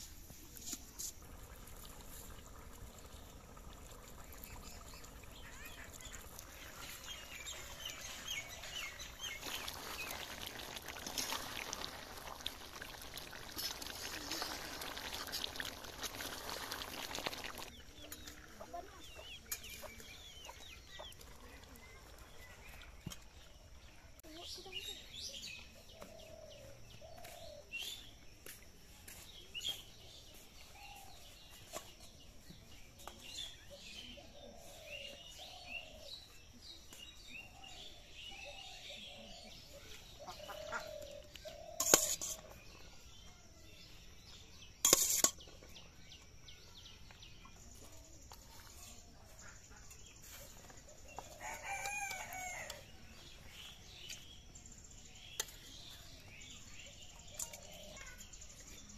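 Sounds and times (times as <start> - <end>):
chickens clucking: 40.1 - 42.3
rooster crowing: 51.4 - 52.9.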